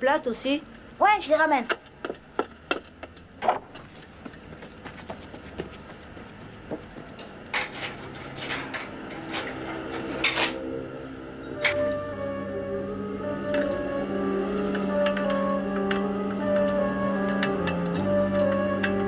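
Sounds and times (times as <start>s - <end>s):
music: 7.7s - 19.0s.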